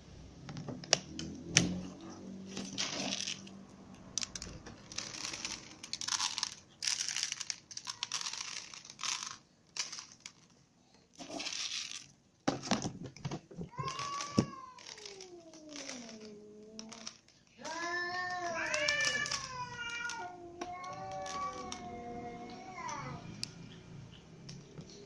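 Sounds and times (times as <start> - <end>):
cats chewing and crunching: 1.2 - 9.4, 13.7 - 25.0.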